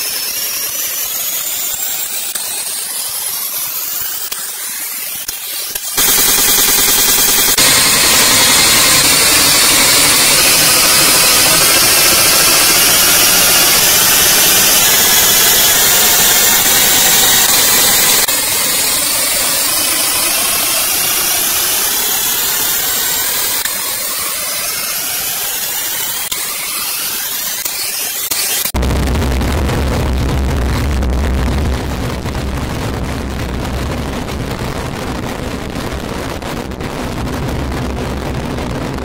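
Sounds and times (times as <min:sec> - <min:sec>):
rising electronic sweep: 0:00.0 - 0:35.2
electronic static hiss: 0:00.0 - 0:39.0
low rumble: 0:28.8 - 0:39.0.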